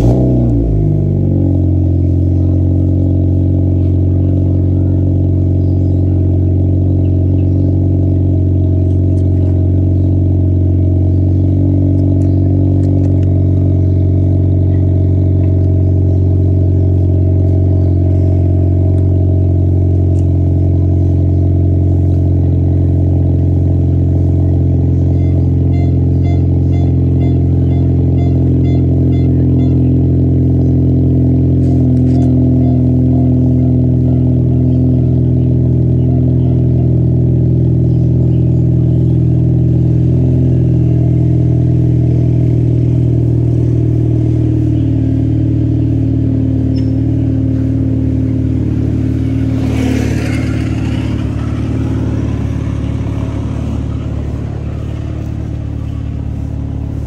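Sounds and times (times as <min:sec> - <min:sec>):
car engine starting and idling: 0:00.0 - 0:57.0.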